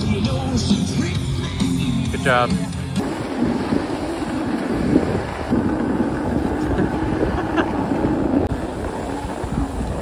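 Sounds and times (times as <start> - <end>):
skis scraping over packed snow: 2.3 - 10.0
wind buffeting microphone: 3.0 - 10.0.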